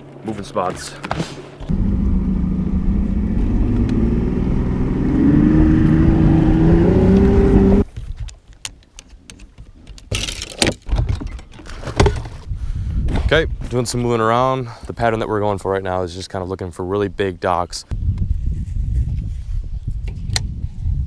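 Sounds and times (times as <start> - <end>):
outboard motor running: 0.0 - 5.0.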